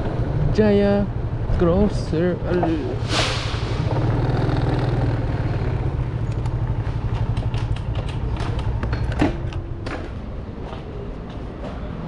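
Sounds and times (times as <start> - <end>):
motorcycle engine running: 3.8 - 8.9.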